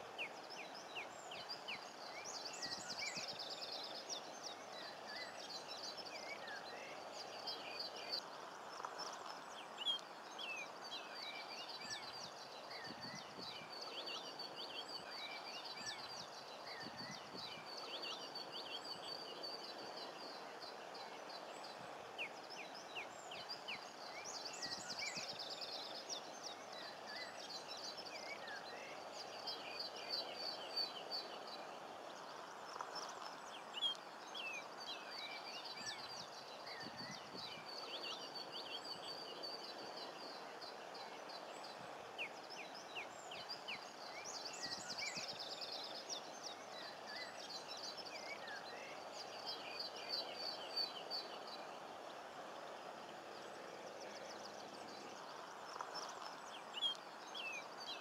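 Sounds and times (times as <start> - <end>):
low background hiss: 0.0 - 58.0.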